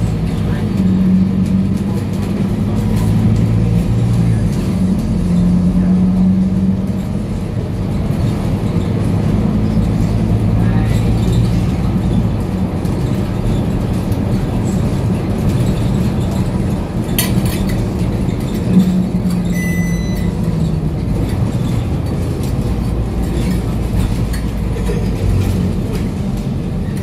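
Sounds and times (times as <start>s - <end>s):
bus engine rumbling: 0.0s - 27.0s
short electronic beep: 19.5s - 20.4s.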